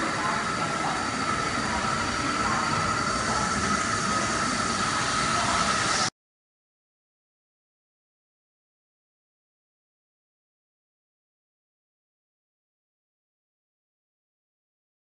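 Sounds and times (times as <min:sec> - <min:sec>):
lathe machine whine: 0:00.0 - 0:06.1.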